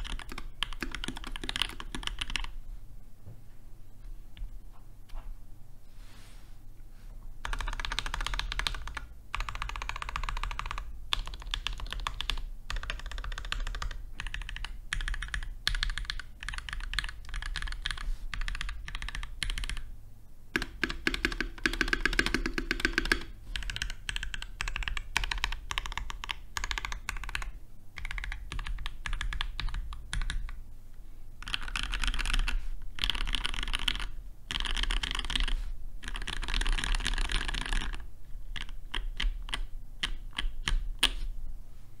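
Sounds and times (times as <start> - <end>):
mechanical keyboard typing: 0.0 - 2.5, 7.4 - 19.9, 20.6 - 30.6, 31.4 - 41.2.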